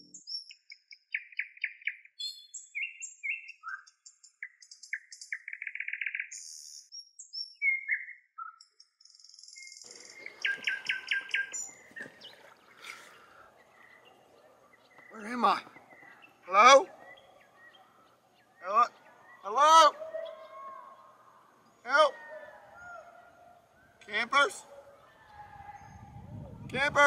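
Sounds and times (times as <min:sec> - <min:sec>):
faint outdoor background: 0:00.0 - 0:27.0
songbirds chirping and trilling: 0:00.0 - 0:27.0.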